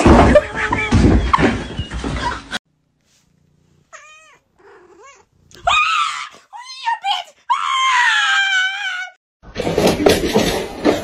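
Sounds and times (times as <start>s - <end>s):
woman screaming: 5.6s - 9.2s.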